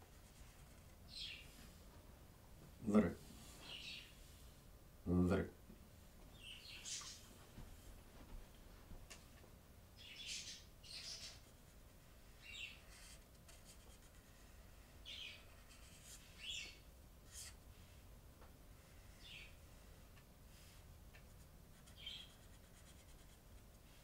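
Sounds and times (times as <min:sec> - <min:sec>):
marker pen squeaking on paper: 0:12.6 - 0:17.6, 0:21.8 - 0:23.3.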